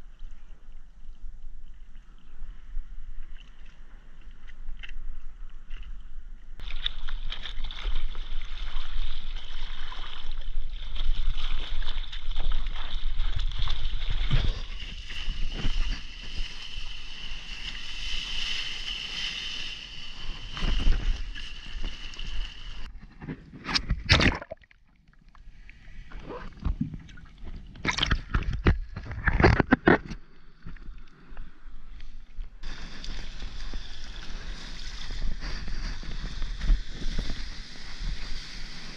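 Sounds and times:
seawater rushing and sloshing: 6.6s - 22.9s, 32.5s - 38.9s
sharp water splashes: 24.0s - 24.8s.

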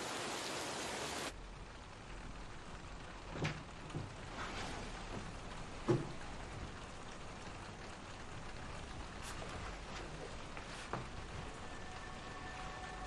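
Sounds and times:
rain hissing: 0.0s - 13.0s.

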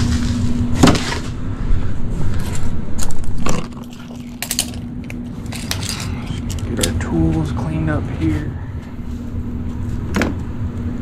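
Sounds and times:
steady low hum: 0.0s - 11.0s
tools and parts clattering: 4.4s - 7.0s.

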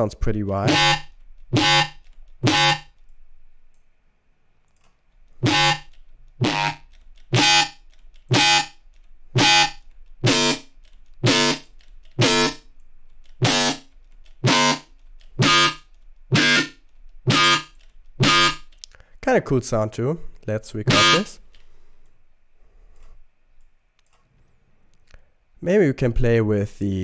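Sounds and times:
distorted synth bass stab: 0.6s - 2.9s, 5.4s - 8.7s, 9.4s - 11.6s, 12.2s - 12.6s, 13.4s - 13.8s, 14.4s - 14.8s, 15.4s - 18.6s.

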